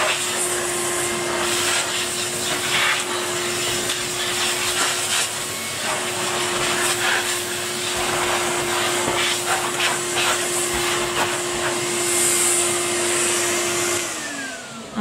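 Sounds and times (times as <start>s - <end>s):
vacuum cleaner running: 0.0s - 15.0s.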